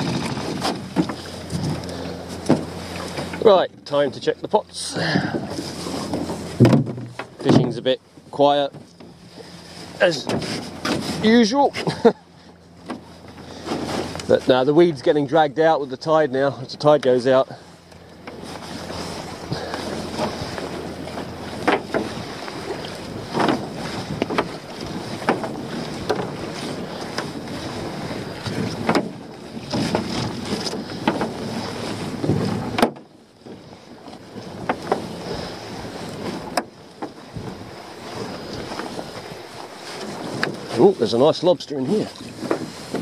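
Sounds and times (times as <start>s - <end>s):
knocks against boat hull: 2.4s - 3.4s, 6.1s - 7.8s, 28.5s - 31.4s, 32.2s - 33.1s.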